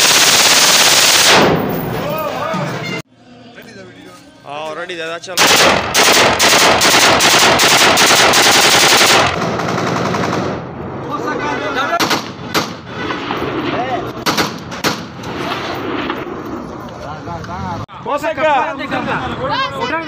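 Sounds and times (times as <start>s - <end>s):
rifle automatic burst: 0.0s - 1.8s, 5.4s - 10.7s, 14.2s - 16.2s
rifle single shots: 5.4s - 9.4s.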